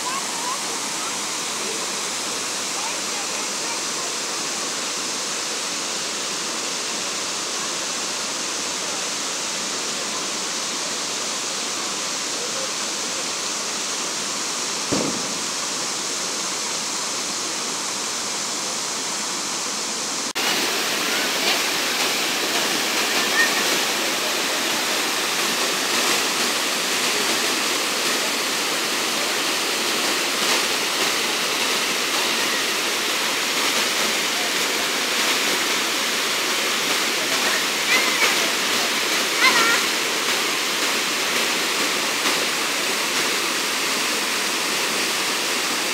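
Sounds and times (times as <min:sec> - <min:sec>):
water pouring over stone cascade: 0:00.0 - 0:45.9
short thump: 0:14.9 - 0:15.7.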